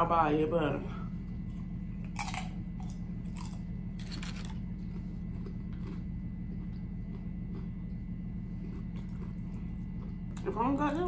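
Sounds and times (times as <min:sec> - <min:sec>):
steady low hum: 0:00.0 - 0:11.0
chewing crunchy chip: 0:01.4 - 0:10.6.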